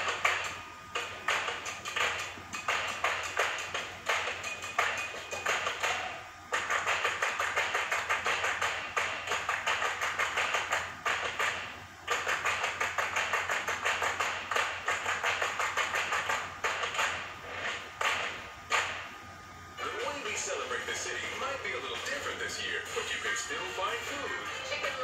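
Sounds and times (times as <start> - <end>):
fast sharp clicks from tv speaker: 0.0 - 19.2.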